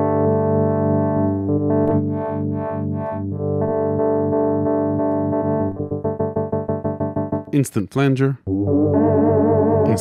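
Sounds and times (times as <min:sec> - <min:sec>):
synthesizer chord with tremolo: 0:00.0 - 0:07.5, 0:08.5 - 0:10.0.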